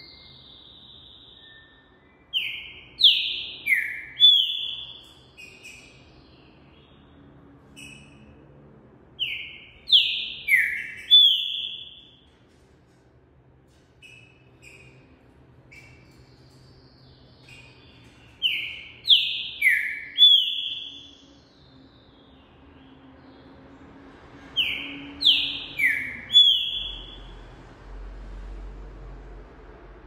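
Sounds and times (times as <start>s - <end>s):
bird singing whistled notes: 0.0s - 8.2s, 9.2s - 12.2s, 15.7s - 23.4s, 24.6s - 27.4s.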